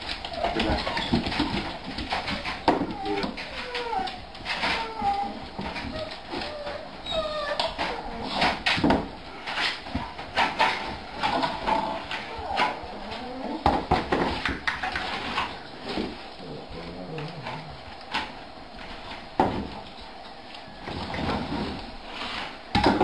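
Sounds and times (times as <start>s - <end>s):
dogs whining: 0.2s - 8.8s, 11.2s - 13.8s.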